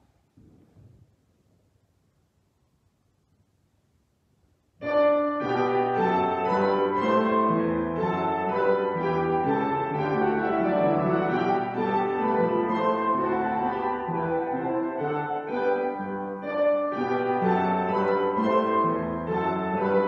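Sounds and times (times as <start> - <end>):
grand piano playing chords: 4.8 - 20.0.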